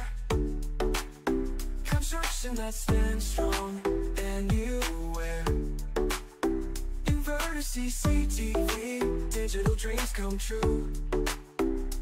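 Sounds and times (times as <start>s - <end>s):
low bass: 0.0s - 12.0s
sustained keyboard chords: 8.1s - 9.9s.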